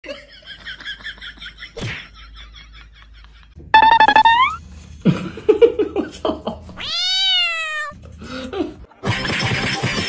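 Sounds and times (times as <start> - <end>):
cat yowling: 6.8 - 8.0.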